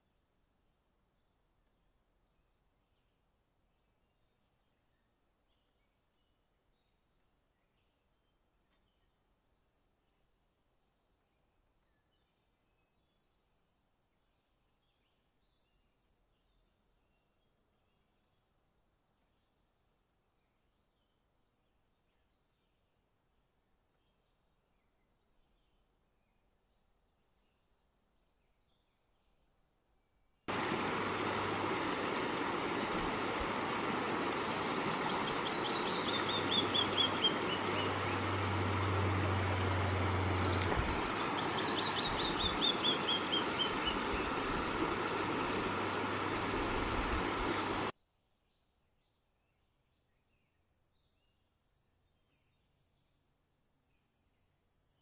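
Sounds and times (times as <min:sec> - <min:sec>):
bird singing: 0:30.5 - 0:47.9
rushing outdoor noise: 0:30.5 - 0:47.9.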